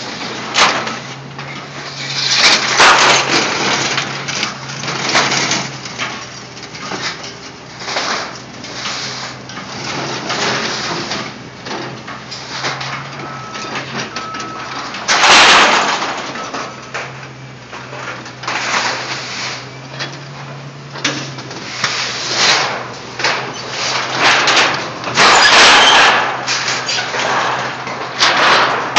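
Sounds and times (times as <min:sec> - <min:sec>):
excavator diesel engine humming: 0:00.0 - 0:15.4, 0:16.0 - 0:18.5
scrap metal clanking and crashing: 0:00.0 - 0:28.9.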